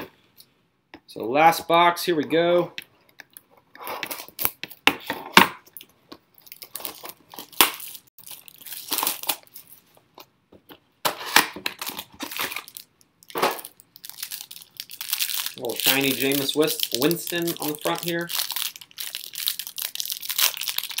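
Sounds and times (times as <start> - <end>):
wrapper crinkling and tearing: 6.4 - 9.9, 11.7 - 21.0.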